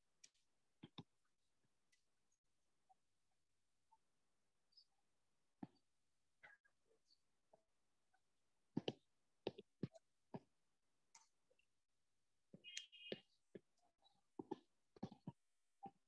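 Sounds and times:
stylus tapping on tablet screen: 0.8 - 1.1, 8.8 - 10.5, 14.4 - 16.0.

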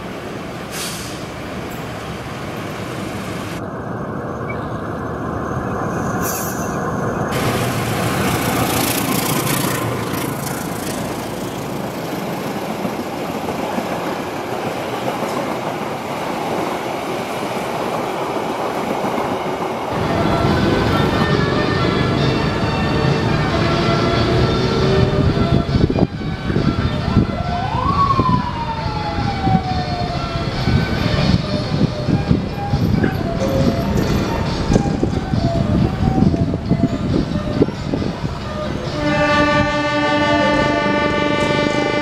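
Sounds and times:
passenger train passing: 0.0 - 42.0
train wheels rolling over rails: 5.9 - 27.0.

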